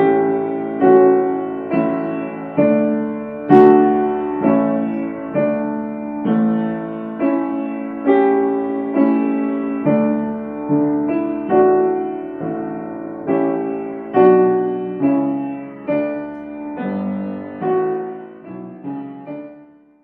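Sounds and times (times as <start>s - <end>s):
gentle piano chords: 0.0s - 20.0s.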